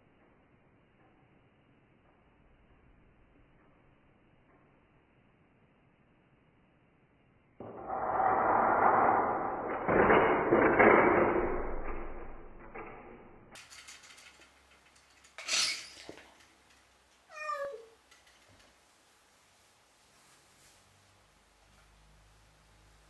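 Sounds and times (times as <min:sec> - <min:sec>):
loud rushing noise: 0:07.6 - 0:11.4
cat meowing: 0:17.3 - 0:18.0.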